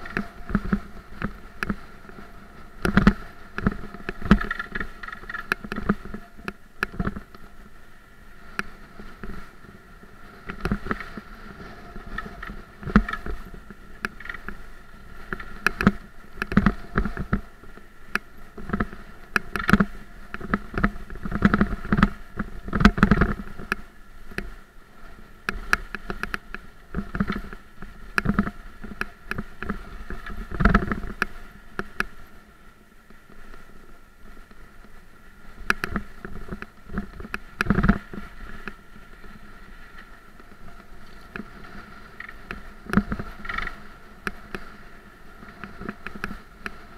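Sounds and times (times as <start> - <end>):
bike rattling over bumps: 0.0 - 7.7, 8.6 - 24.0, 35.6 - 44.7.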